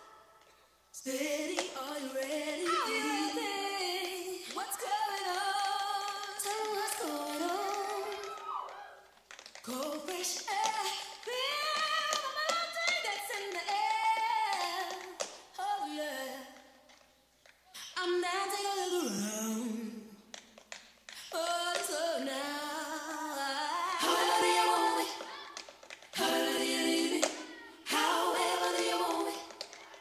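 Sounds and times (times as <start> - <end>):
woman singing unaccompanied: 1.0 - 8.4, 9.6 - 16.7, 21.3 - 25.4
tap shoes tapping on stage: 2.6 - 15.5, 20.3 - 22.0, 23.9 - 26.6, 27.2 - 30.0.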